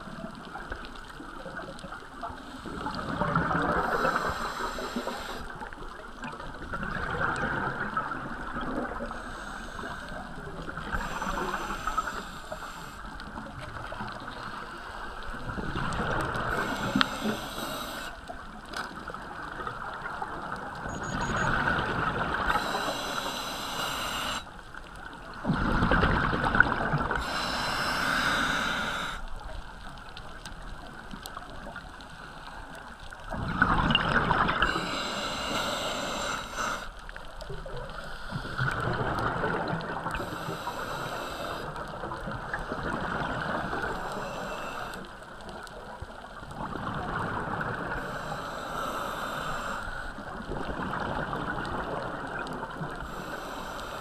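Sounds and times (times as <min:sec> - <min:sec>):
bubbles rushing and gurgling: 0:00.0 - 0:29.1, 0:33.1 - 0:48.6, 0:49.5 - 0:53.2
diver breathing through regulator: 0:02.4 - 0:05.5, 0:08.9 - 0:13.2, 0:14.3 - 0:18.3, 0:22.4 - 0:24.5, 0:27.1 - 0:29.2, 0:33.9 - 0:37.0, 0:37.9 - 0:39.2, 0:40.0 - 0:45.2, 0:47.8 - 0:50.4, 0:53.0 - 0:54.0.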